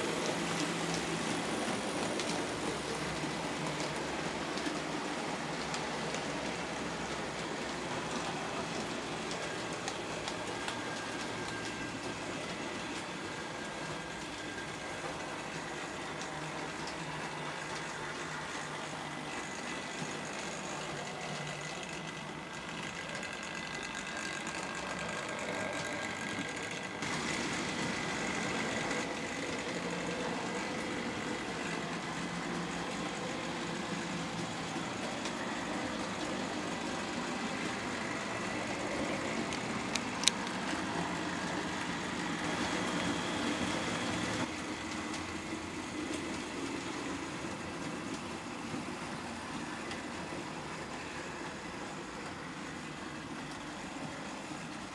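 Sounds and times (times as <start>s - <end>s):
model train motors whirring: 0.0s - 54.9s
wheels rattling on track: 0.0s - 54.9s.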